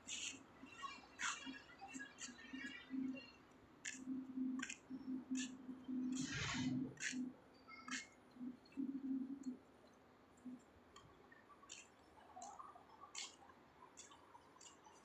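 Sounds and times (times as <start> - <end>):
faint sharp clicks: 8.7 - 15.0.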